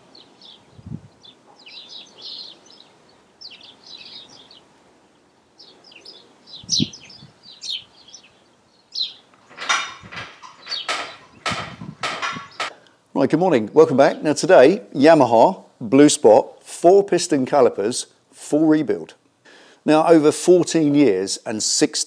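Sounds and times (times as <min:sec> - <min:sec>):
small birds chirping: 0:00.0 - 0:14.7
dull thuds: 0:09.5 - 0:12.7
sharp knocks: 0:09.5 - 0:12.8.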